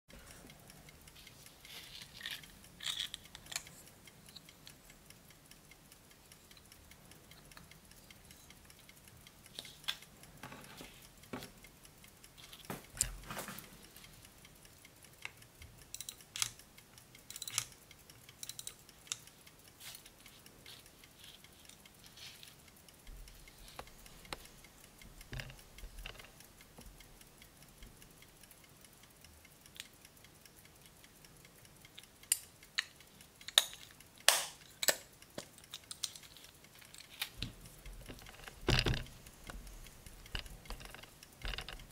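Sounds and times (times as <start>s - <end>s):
pocket watch ticking: 0.1s - 41.9s
watch case clicks and knocks: 38.1s - 39.1s.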